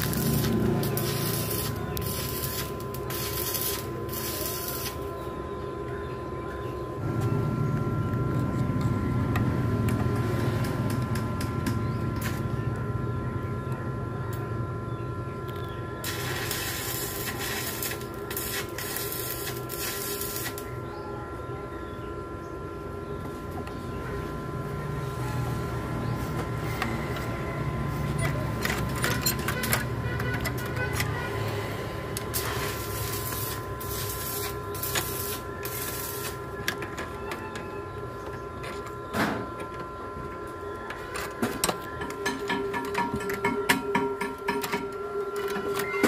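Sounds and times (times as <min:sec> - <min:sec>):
mechanical hum with whine: 0:00.0 - 0:46.0.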